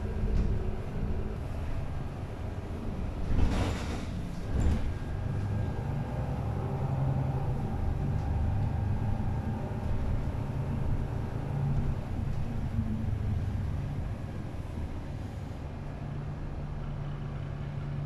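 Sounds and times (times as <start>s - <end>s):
bus engine and cabin rumble: 0.0s - 18.0s.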